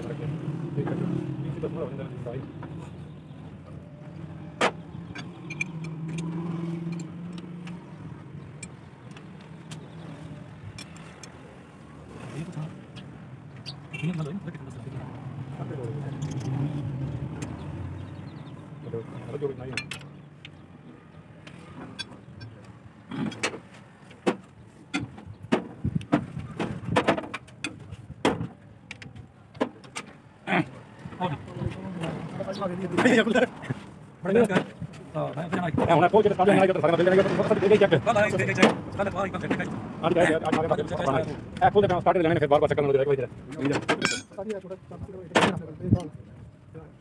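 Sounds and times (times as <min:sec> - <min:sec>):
engine hum: 0:00.0 - 0:44.1
metal tools clinking on metal: 0:05.1 - 0:07.5, 0:16.1 - 0:16.6, 0:19.7 - 0:20.2, 0:43.6 - 0:44.4.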